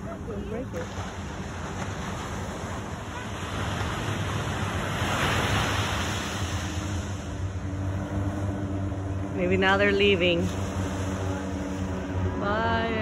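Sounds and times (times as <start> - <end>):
ocean surf washing onto beach: 0.0 - 13.0.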